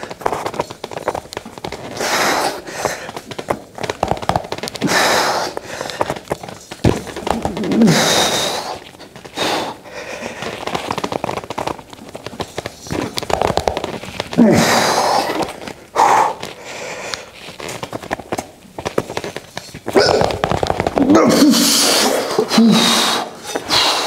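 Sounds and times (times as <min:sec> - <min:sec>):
person breathing forcefully: 0:01.8 - 0:03.4, 0:04.8 - 0:11.8, 0:13.7 - 0:17.8, 0:19.9 - 0:24.0
person grunting with effort: 0:14.4 - 0:15.4, 0:20.0 - 0:20.4, 0:21.0 - 0:23.7.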